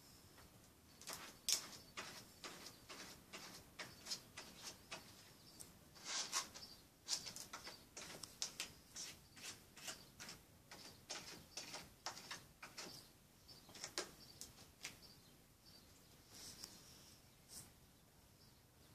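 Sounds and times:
cat scratching litter: 1.0 - 5.3, 6.0 - 13.1.

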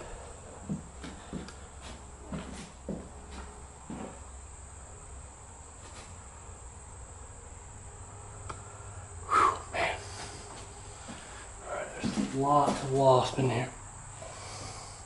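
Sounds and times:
crickets trilling: 0.0 - 15.0
footsteps on floor: 0.6 - 4.2, 12.0 - 13.0.

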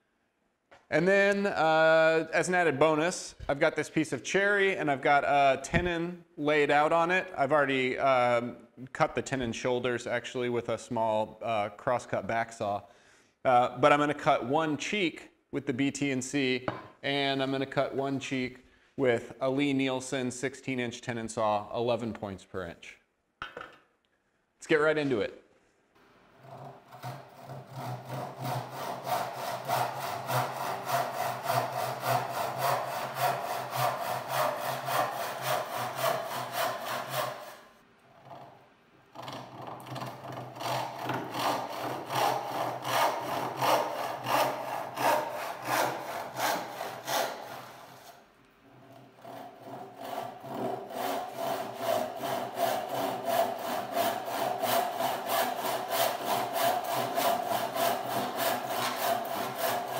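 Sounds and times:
handsaw ripping a board: 26.4 - 37.7, 39.2 - 48.2, 49.2 - 59.9.

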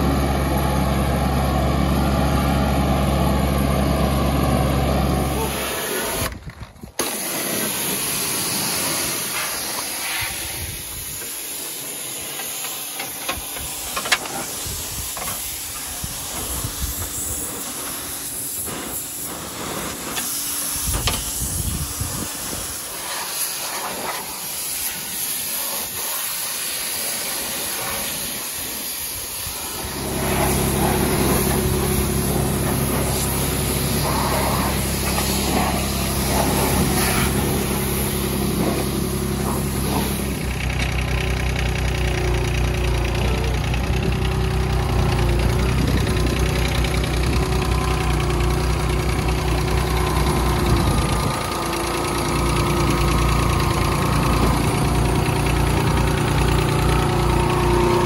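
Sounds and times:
diesel engine running: 0.0 - 58.0
pressure washer jet spattering: 7.0 - 41.0
machine hum: 29.5 - 58.0.

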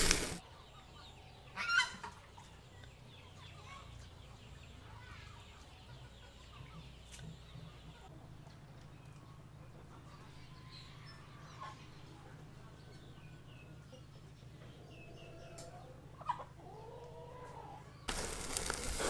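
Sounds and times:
chicken clucking: 5.6 - 8.6, 13.6 - 17.8.

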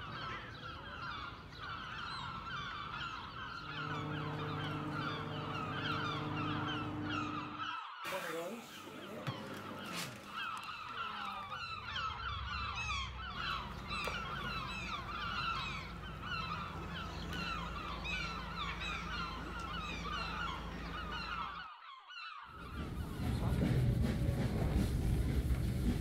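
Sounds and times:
steady low hum: 0.0 - 7.7, 8.7 - 21.6
flock of birds calling: 0.0 - 23.7.

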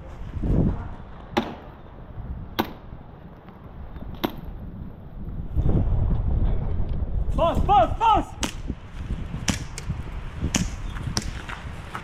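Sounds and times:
wind rumble on microphone: 0.0 - 12.0.

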